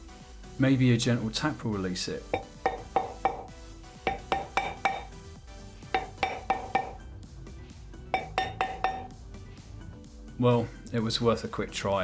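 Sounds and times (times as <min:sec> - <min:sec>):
hammer tapping on metal flywheel: 0:02.4 - 0:03.5, 0:04.1 - 0:05.2, 0:05.9 - 0:07.0, 0:08.2 - 0:09.2.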